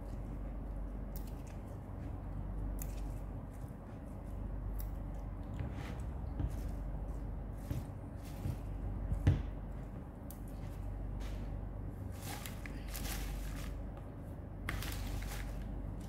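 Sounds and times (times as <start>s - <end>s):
low steady hum: 0.0s - 16.0s
leaves rustling: 12.1s - 13.9s, 14.7s - 16.0s.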